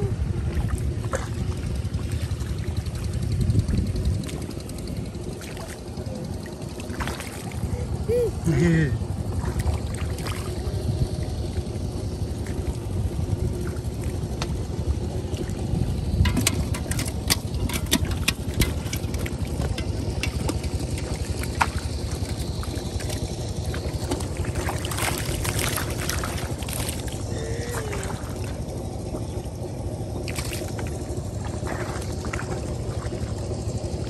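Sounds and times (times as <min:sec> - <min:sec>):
steady low rumble: 0:00.0 - 0:34.0
fish splashing in water: 0:04.0 - 0:07.9, 0:09.2 - 0:12.8, 0:18.4 - 0:34.0.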